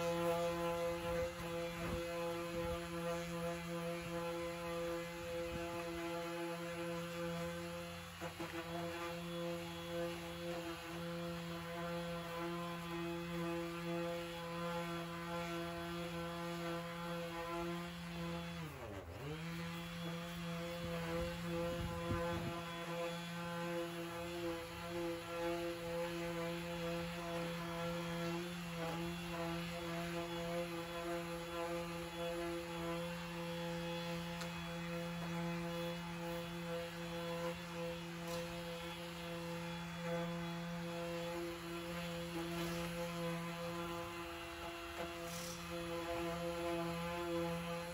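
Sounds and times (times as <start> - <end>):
orbital sander running: 0.0 - 47.9.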